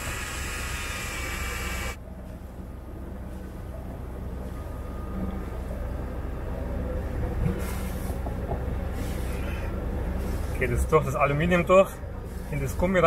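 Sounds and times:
short hiss: 0:00.0 - 0:02.0
boat engine droning: 0:00.0 - 0:13.0.

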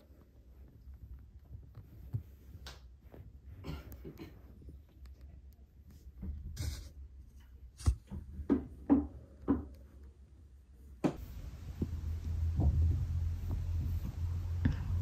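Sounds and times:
low steady hum: 0:09.8 - 0:15.0.

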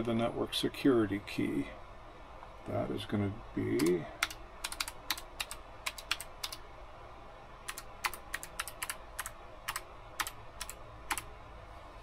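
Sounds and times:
computer keyboard typing: 0:03.8 - 0:06.6, 0:07.7 - 0:11.3.

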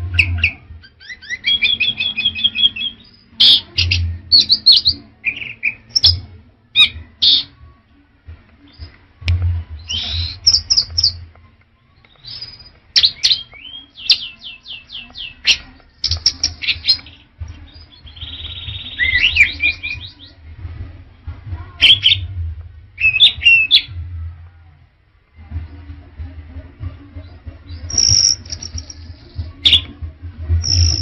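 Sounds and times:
low rumble: 0:08.2 - 0:11.4, 0:17.4 - 0:31.0
thrush singing: 0:26.8 - 0:29.9.

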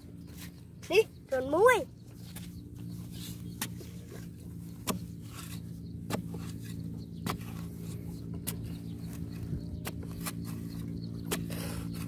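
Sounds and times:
steady low hum: 0:00.0 - 0:12.0
stick striking damp soil: 0:03.1 - 0:12.0.

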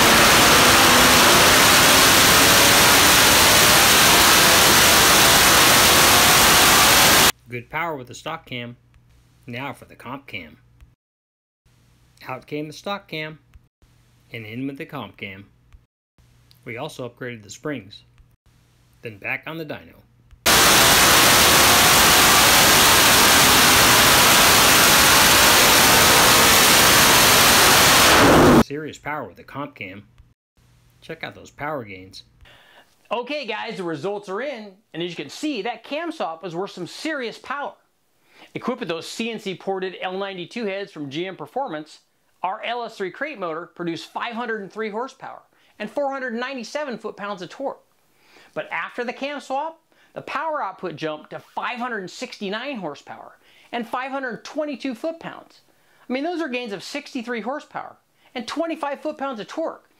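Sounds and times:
distorted engine roar: 0:00.0 - 0:07.3, 0:20.5 - 0:28.6.

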